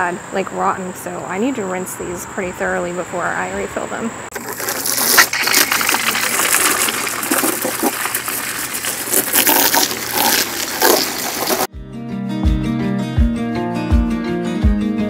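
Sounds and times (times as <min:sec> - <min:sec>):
hose spray hitting plastic: 0:04.4 - 0:11.7.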